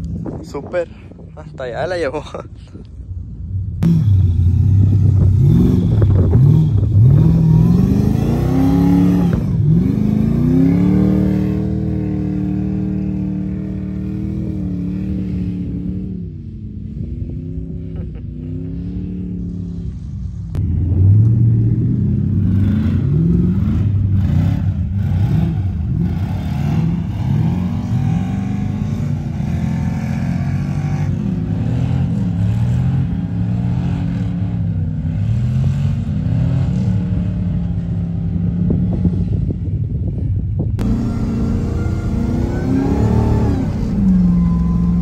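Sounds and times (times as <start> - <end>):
vehicle engine revving: 3.8 - 39.4, 40.8 - 45.0.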